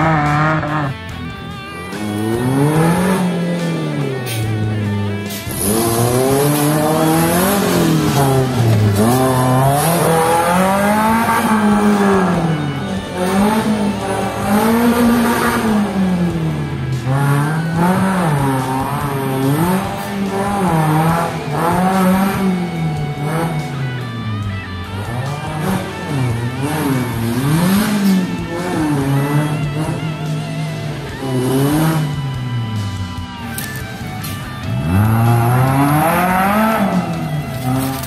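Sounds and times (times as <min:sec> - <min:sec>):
buggy engine revving hard: 0:00.0 - 0:38.0.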